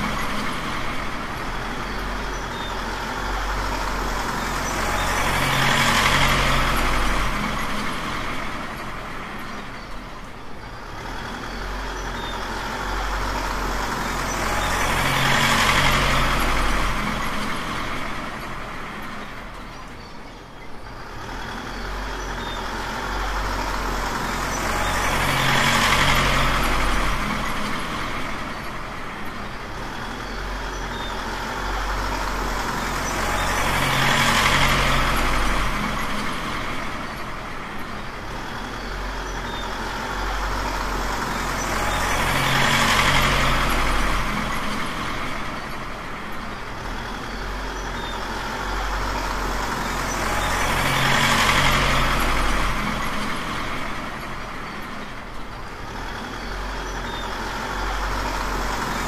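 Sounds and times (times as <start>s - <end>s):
truck engine running: 0.0s - 59.0s.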